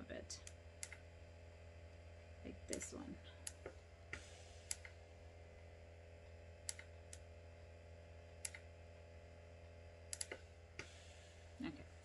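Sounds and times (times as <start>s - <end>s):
steady low hum: 0.0s - 12.0s
small sharp clicks: 0.4s - 1.0s, 2.7s - 5.0s, 6.6s - 7.3s, 8.4s - 8.7s, 10.1s - 10.9s.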